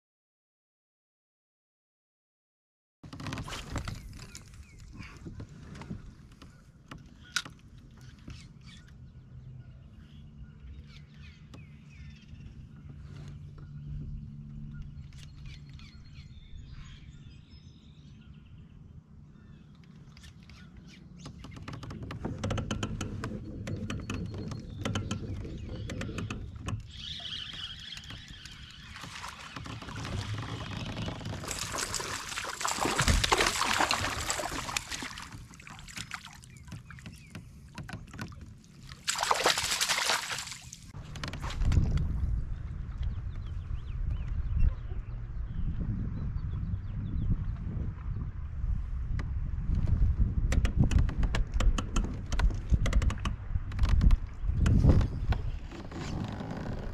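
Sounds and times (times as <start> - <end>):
bird calls: 4.0 - 18.6, 19.3 - 22.0, 23.1 - 38.4
water sloshing and splashing: 21.5 - 42.2.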